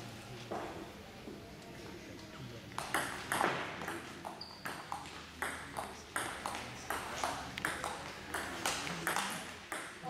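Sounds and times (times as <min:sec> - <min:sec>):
table tennis ball hits: 0:02.8 - 0:10.0.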